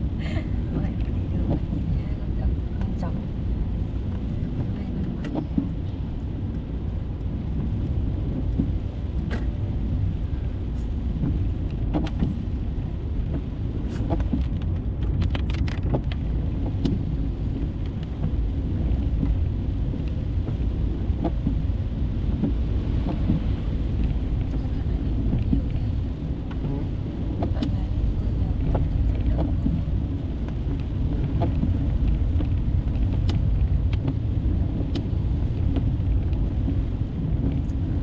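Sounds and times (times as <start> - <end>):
car driving on wet road: 0.0 - 38.0.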